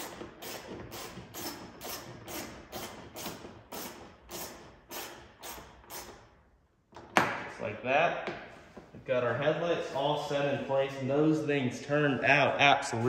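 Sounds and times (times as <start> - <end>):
ratchet clicking: 0.0 - 6.3.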